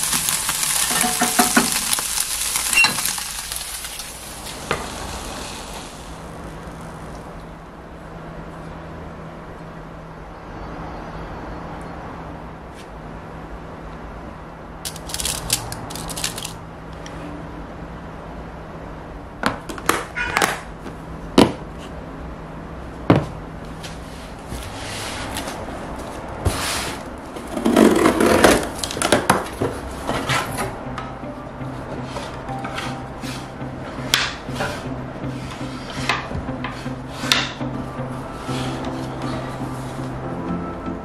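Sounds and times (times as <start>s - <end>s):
cardboard rustling and scraping: 23.8s - 30.5s.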